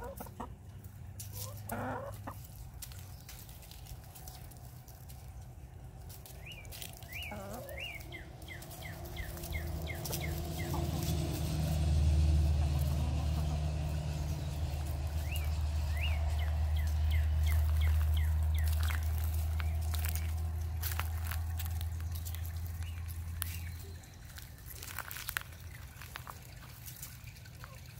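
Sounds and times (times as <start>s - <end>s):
small bird chirping: 6.3s - 11.4s, 14.0s - 27.8s
low rumble: 8.0s - 27.9s.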